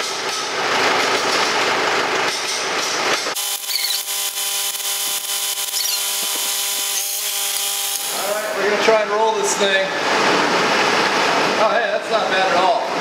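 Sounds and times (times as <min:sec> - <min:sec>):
steady hum: 0:03.4 - 0:11.6.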